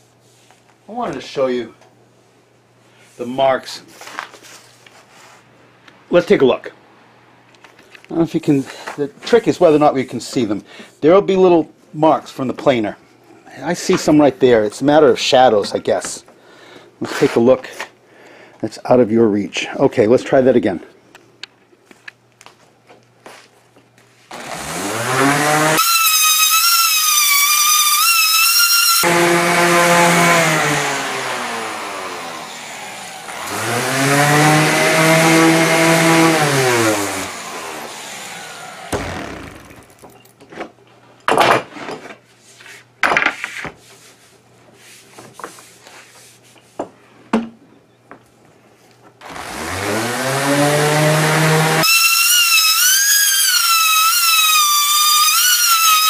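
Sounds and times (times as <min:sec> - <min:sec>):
orbital sander running: 0:24.3 - 0:40.0, 0:49.2 - 0:56.0.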